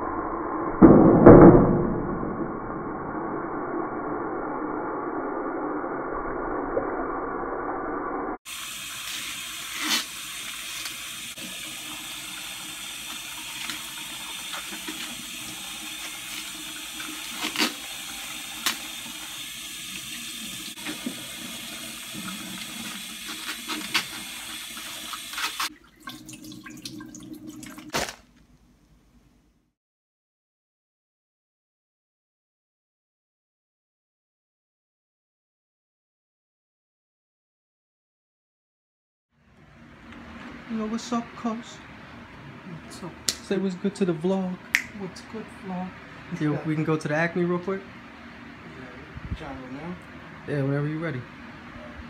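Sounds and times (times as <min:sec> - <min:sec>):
tap water running into sink: 0:08.5 - 0:28.2.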